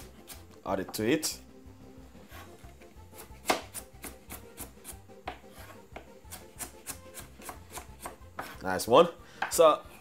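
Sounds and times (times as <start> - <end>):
knife knocking on wooden board: 5.2 - 6.1.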